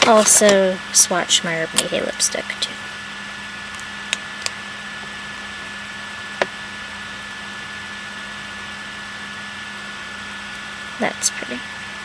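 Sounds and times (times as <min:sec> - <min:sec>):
computer fan running: 0:00.0 - 0:12.0.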